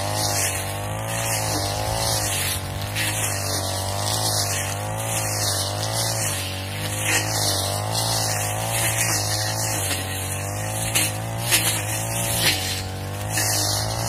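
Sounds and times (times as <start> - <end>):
brush cutter engine cutting grass: 0.0 - 14.0.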